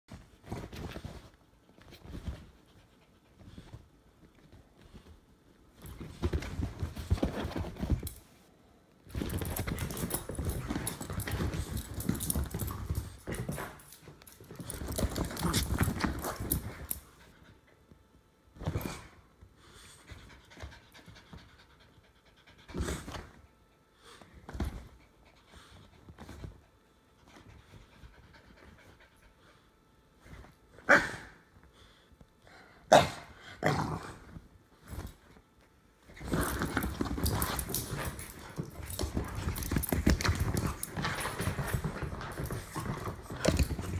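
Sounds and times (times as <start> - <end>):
dogs scuffling: 0.1 - 8.2, 9.0 - 17.1, 34.3 - 43.9.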